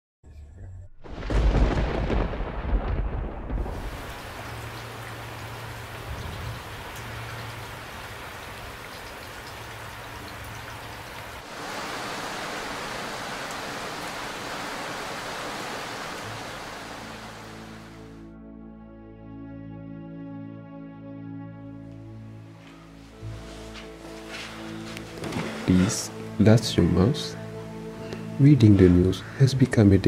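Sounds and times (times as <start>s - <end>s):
thunder rumbling: 1.0s - 8.8s
steady rain falling: 1.2s - 18.2s, 22.6s - 26.5s.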